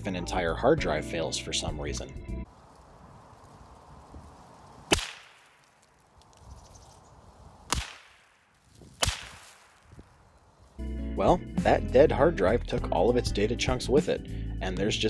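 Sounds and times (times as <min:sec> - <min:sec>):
gunshots: 0:04.9 - 0:05.5, 0:07.7 - 0:08.4, 0:09.0 - 0:09.8.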